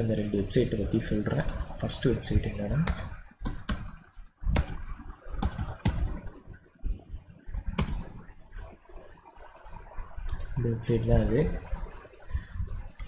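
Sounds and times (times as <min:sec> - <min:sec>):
keyboard keystrokes: 0:02.8 - 0:03.9, 0:05.4 - 0:06.1, 0:07.8 - 0:08.1.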